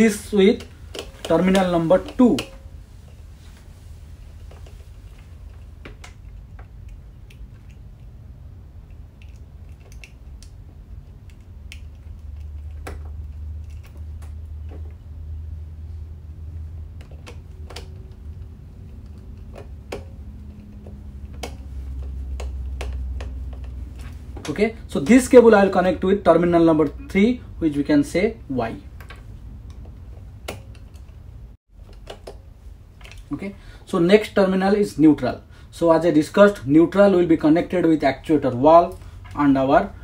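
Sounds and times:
low steady rumble: 0.0 - 40.0
screwdriver and wire clicks: 0.3 - 2.7.

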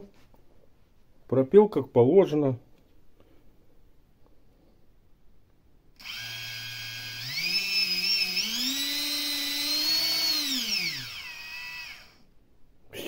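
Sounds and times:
electric motor whine: 6.0 - 12.2.

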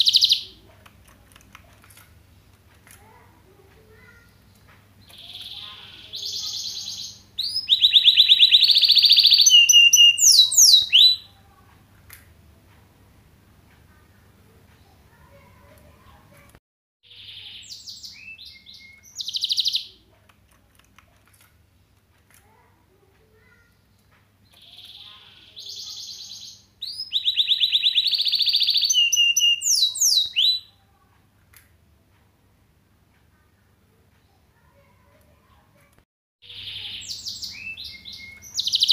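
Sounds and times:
canary singing trills and whistles: 0.0 - 0.6, 5.0 - 11.3, 17.0 - 20.0, 24.5 - 30.8, 36.4 - 38.9.

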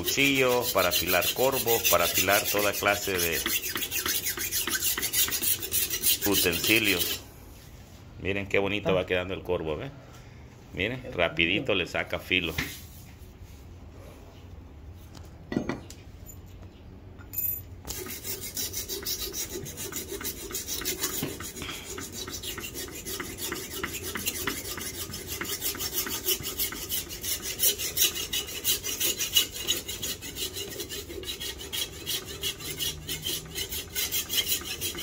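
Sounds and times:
blade scraping on sharpening stone: 0.0 - 7.2, 17.9 - 35.0.

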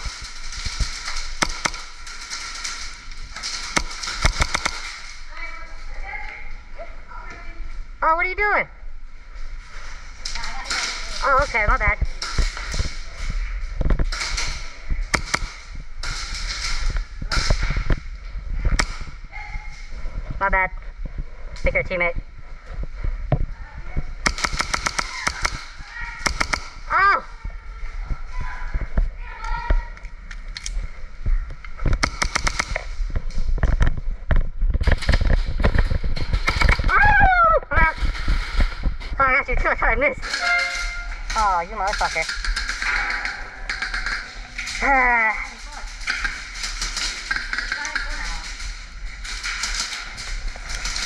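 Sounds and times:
airsoft guns firing rapidly: 0.0 - 5.3, 14.1 - 17.8, 24.2 - 27.0, 32.0 - 33.0, 34.8 - 39.0, 40.2 - 51.0
airsoft gun pops: 24.2 - 25.6, 26.2 - 26.7, 31.9 - 32.8.

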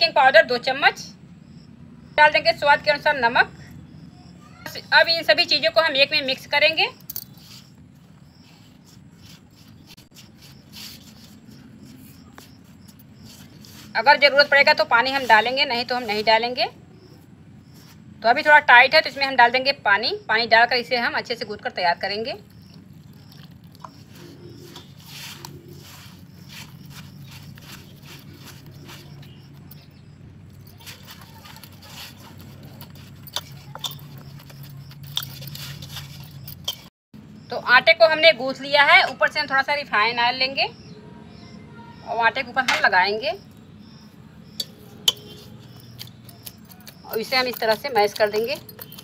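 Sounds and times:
hand mixing flour in metal bowl: 7.4 - 16.6, 21.7 - 29.8, 30.6 - 36.9, 44.6 - 49.0.

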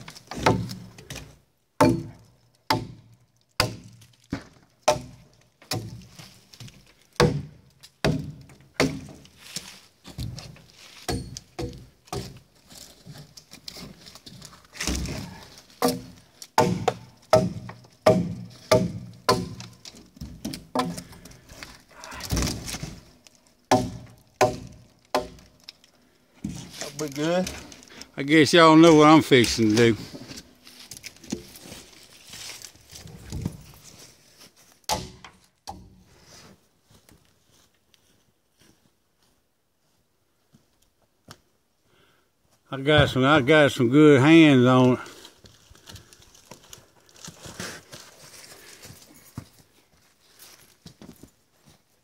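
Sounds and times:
hatchet chopping logs: 0.0 - 12.5, 13.1 - 25.8, 34.9 - 36.0.

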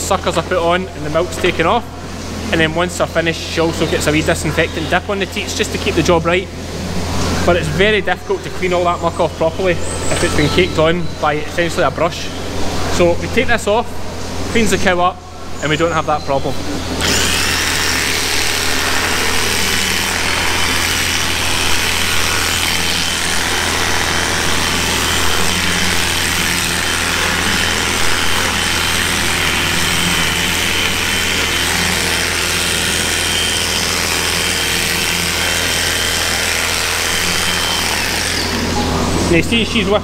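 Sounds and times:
electric clippers whining: 17.0 - 40.0.

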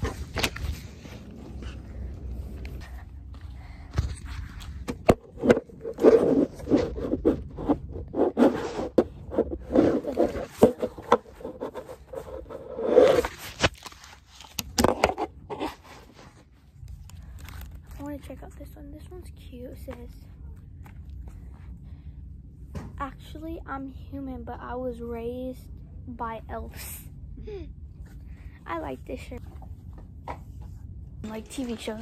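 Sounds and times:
fabric rubbing on microphone: 5.4 - 13.7.

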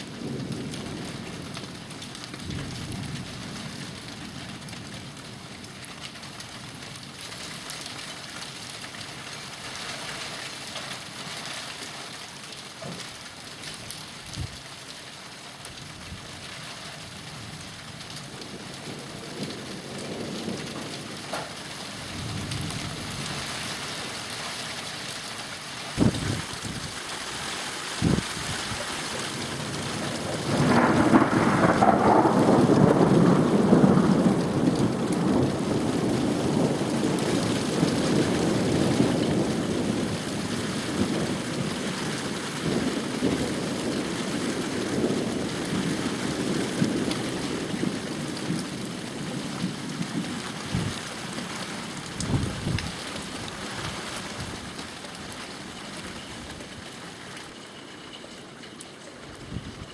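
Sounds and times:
steady rain: 0.0 - 59.9
thunder rolling rumble: 18.3 - 23.6, 26.0 - 27.0, 28.0 - 51.0, 52.1 - 53.0.

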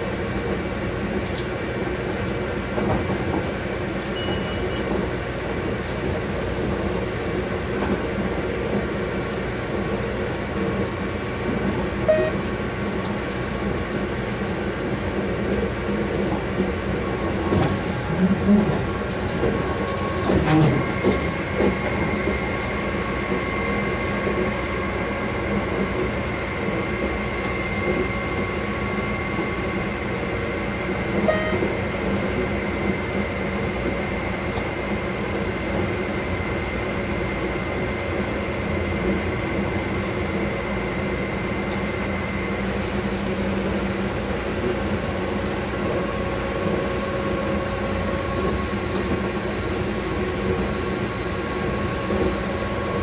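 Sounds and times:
locomotive running rumble: 0.0 - 53.0
whining tones: 31.2 - 31.9.

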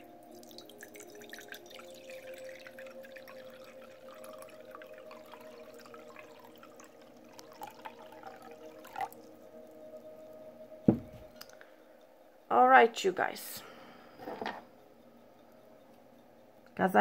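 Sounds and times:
small water drips: 0.0 - 10.5, 11.3 - 12.1
water trickling into glass bowl: 0.0 - 10.5
faint hum: 0.0 - 17.0.

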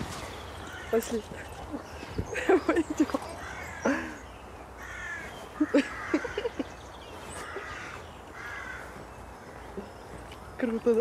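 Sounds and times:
crow cawing: 0.6 - 1.0, 3.4 - 4.0, 4.8 - 6.6, 7.4 - 9.6.

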